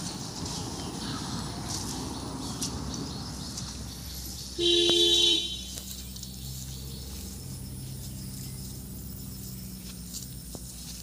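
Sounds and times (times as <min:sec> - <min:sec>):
quiet rural background: 0:00.0 - 0:11.0
two-note vehicle horn honk: 0:04.6 - 0:05.8.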